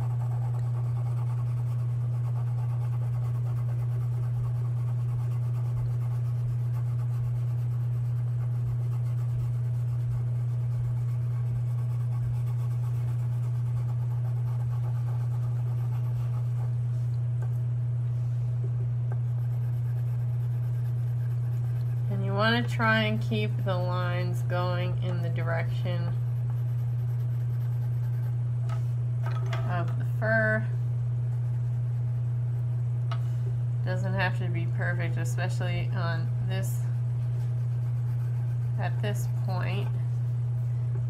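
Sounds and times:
low electrical hum: 0:00.0 - 0:41.0.

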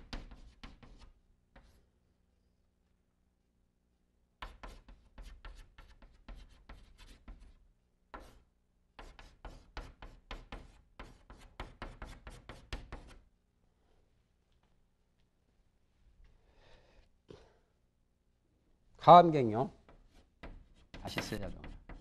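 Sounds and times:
chalk tapping and scraping on blackboard: 0:00.0 - 0:01.8, 0:04.4 - 0:13.3, 0:19.8 - 0:22.0.

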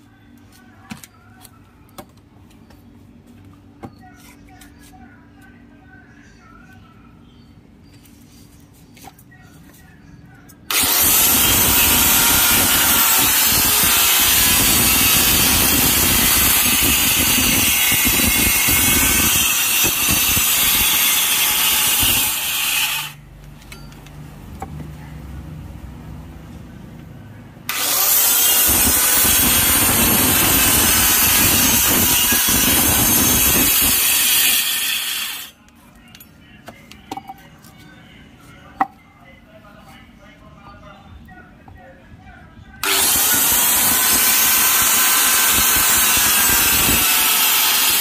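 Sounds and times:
electric saw cutting wood: 0:10.7 - 0:23.2, 0:27.7 - 0:35.5, 0:42.8 - 0:48.0.

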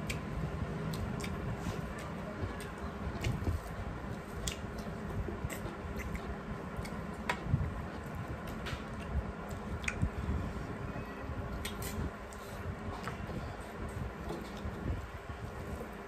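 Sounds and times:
fingers squishing rice and curry: 0:00.0 - 0:10.8
chewing: 0:00.9 - 0:10.1.

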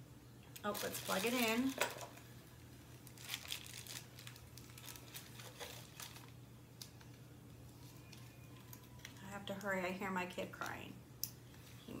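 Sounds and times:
faint low hum: 0:00.0 - 0:12.0
packaging rustling and crinkling: 0:00.6 - 0:02.3, 0:02.9 - 0:07.2.

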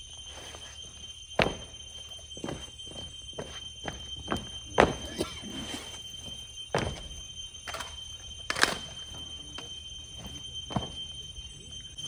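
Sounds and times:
faint high-pitched whine: 0:00.0 - 0:12.0.

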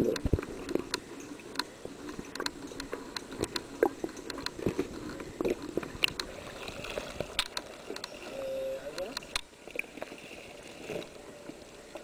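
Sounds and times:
sharp clicks under water: 0:00.0 - 0:08.3, 0:08.9 - 0:10.1.

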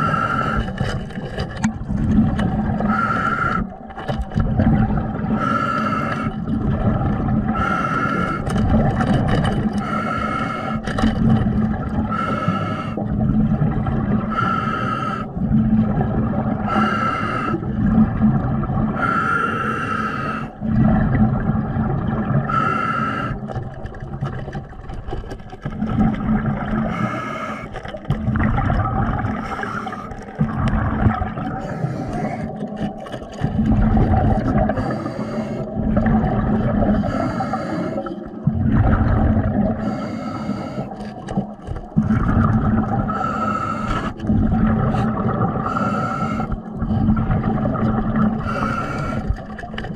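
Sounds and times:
diver breathing through regulator: 0:00.0 - 0:01.1, 0:02.8 - 0:03.8, 0:05.3 - 0:06.5, 0:07.4 - 0:08.6, 0:09.6 - 0:11.0, 0:11.9 - 0:13.2, 0:14.2 - 0:15.5, 0:16.6 - 0:17.8, 0:18.9 - 0:20.6, 0:22.4 - 0:23.6, 0:26.8 - 0:28.0, 0:29.3 - 0:30.6, 0:31.4 - 0:32.9, 0:33.8 - 0:36.0, 0:36.7 - 0:38.5, 0:39.6 - 0:41.2, 0:43.0 - 0:47.5, 0:48.1 - 0:49.5
underwater bubbles rumbling: 0:00.0 - 0:49.9.

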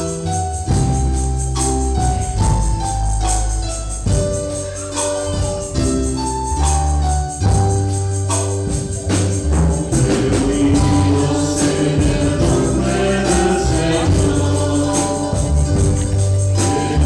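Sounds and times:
band accompaniment: 0:00.0 - 0:17.0
choir and congregation singing hymn: 0:09.8 - 0:17.0.

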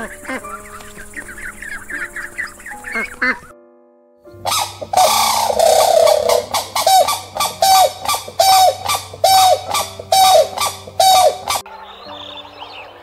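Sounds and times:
faint background music: 0:00.0 - 0:13.0
crane honking calls: 0:04.4 - 0:12.4.

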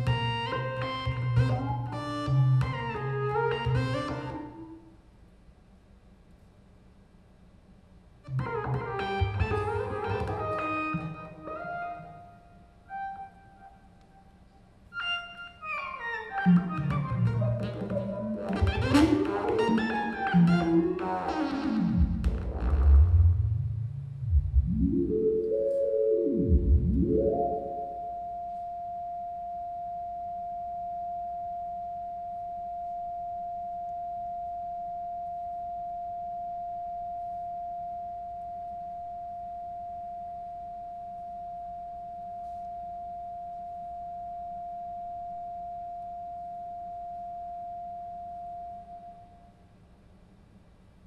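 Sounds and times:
theremin tones: 0:14.9 - 0:49.6.

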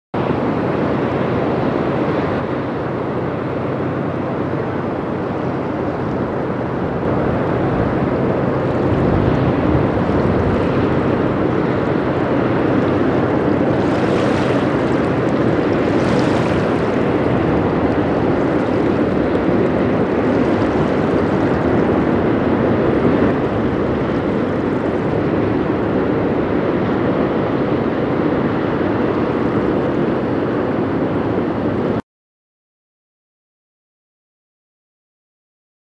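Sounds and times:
boat diesel engines running: 0:00.2 - 0:32.0
river water wash: 0:00.2 - 0:32.0.

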